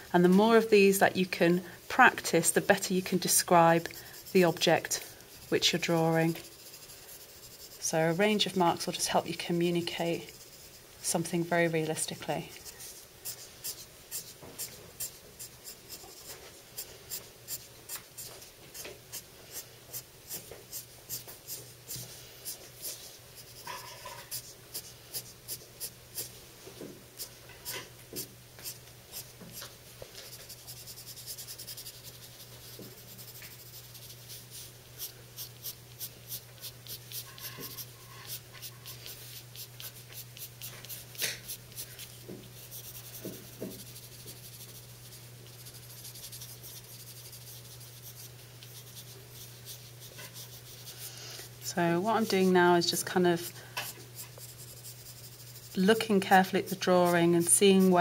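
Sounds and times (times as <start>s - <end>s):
pencil scratching on paper: 2.6s - 8.5s, 12.6s - 16.4s, 30.2s - 51.1s, 54.2s - 58.0s.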